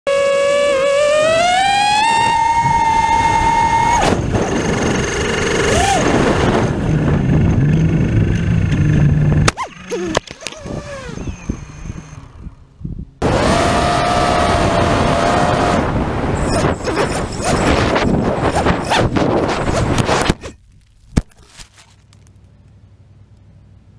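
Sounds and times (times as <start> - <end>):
drone motors whining: 0.1 - 20.6.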